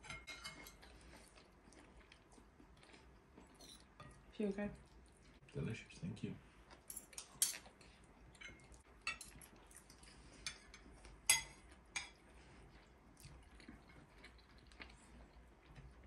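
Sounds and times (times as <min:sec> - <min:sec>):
cutlery and dishes clinking: 0:00.0 - 0:00.9, 0:03.6 - 0:04.2, 0:06.9 - 0:07.7, 0:08.4 - 0:09.5, 0:10.4 - 0:12.2.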